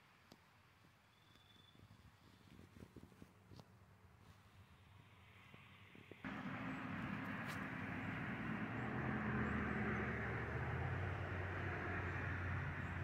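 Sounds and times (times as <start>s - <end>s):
engine-like hum and rumble: 6.2s - 13.0s.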